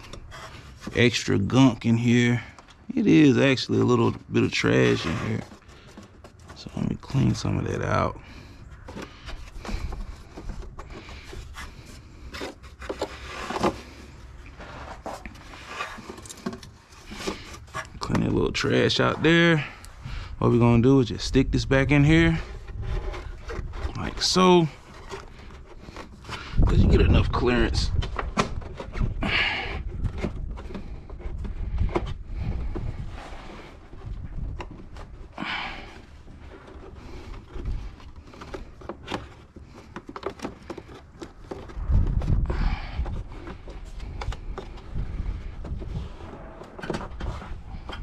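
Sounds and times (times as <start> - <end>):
hands rustling in plastic housing: 0.0 - 48.0
plastic clicks and scrapes: 8.3 - 18.3, 22.4 - 29.2, 29.8 - 42.4, 43.0 - 48.0.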